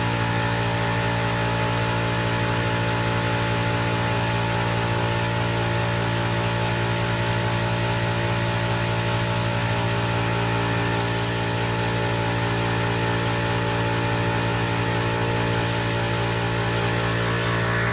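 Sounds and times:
loud machine hum: 0:00.0 - 0:17.9
paint spray gun hissing: 0:08.6 - 0:09.7, 0:10.9 - 0:17.9.

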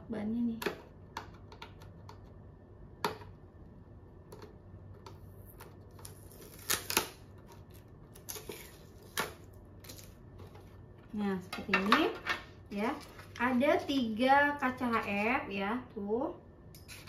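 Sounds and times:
cardboard and tape crackling: 0:05.3 - 0:10.8.

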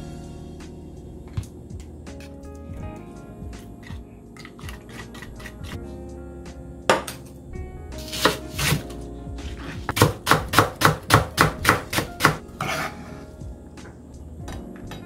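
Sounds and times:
knife chopping on cutting board: 0:08.0 - 0:08.9, 0:09.6 - 0:13.1
knife scraping board: 0:08.0 - 0:08.9, 0:12.6 - 0:13.3.

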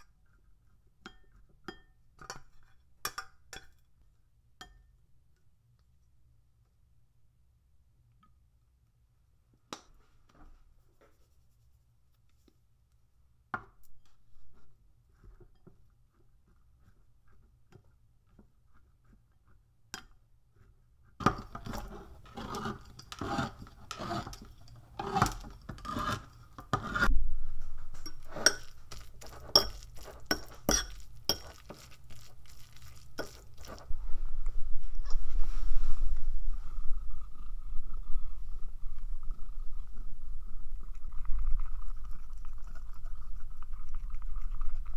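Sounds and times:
metallic clinks and scrapes on tin: 0:28.0 - 0:33.8.

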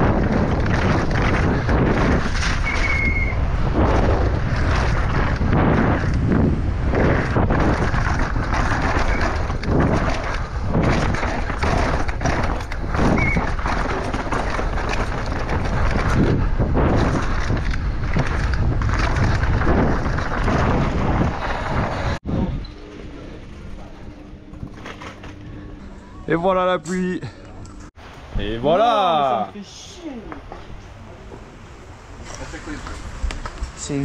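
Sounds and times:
bike knocking and rattling: 0:00.0 - 0:25.8, 0:32.2 - 0:34.0
wind rushing over microphone: 0:00.0 - 0:25.9.

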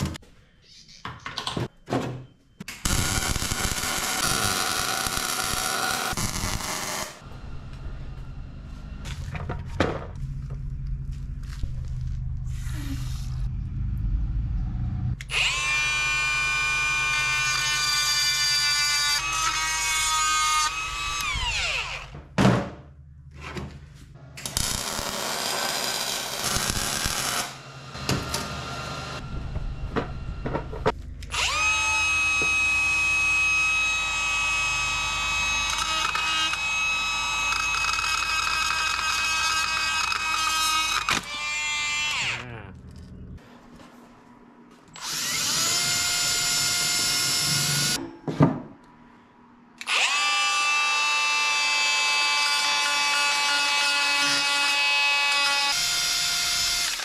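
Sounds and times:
power tool motor whine: 0:31.3 - 0:42.3, 0:45.0 - 0:48.0, 0:49.8 - 0:57.0.

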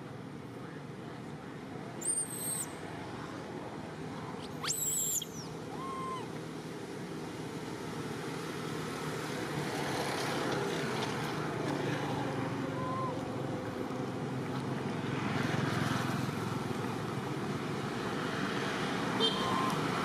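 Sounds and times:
high-pitched squealing calls: 0:02.0 - 0:02.7, 0:04.4 - 0:06.3, 0:19.4 - 0:19.9.

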